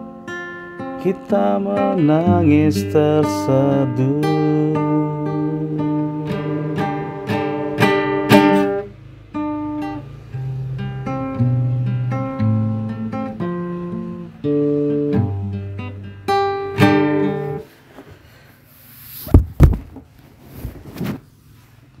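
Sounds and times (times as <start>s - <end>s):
acoustic guitar music: 0.0s - 20.2s
loud short thumps: 19.2s - 21.2s.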